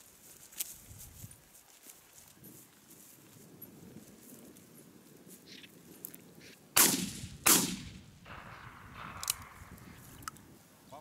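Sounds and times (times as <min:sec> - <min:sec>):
shotgun shots: 0:06.8 - 0:10.0.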